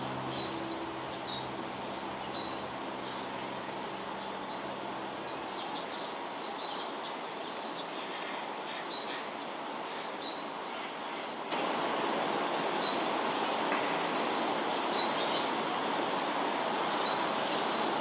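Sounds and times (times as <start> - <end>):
low held music chord: 0.0 - 6.4
outdoor background noise: 0.0 - 18.0.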